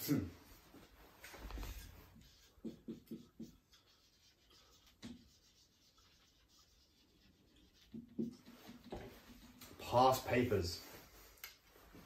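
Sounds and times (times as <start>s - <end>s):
marker writing on whiteboard: 1.2s - 10.0s.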